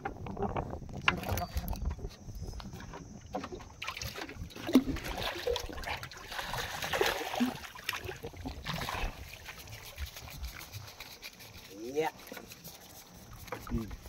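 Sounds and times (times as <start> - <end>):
fish splashing in water: 3.4 - 14.0.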